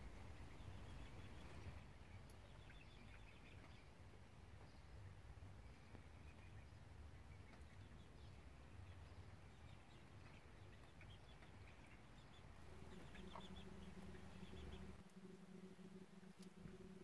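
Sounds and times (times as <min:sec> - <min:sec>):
steady low hum: 0:00.0 - 0:17.0
small bird chirps: 0:05.6 - 0:17.0
low rumble: 0:12.6 - 0:17.0.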